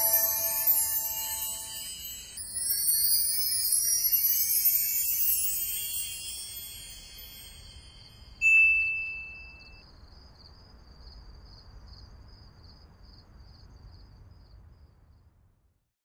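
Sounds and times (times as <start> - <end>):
bright chime: 0.0 - 9.8
crickets chirping: 0.0 - 15.0.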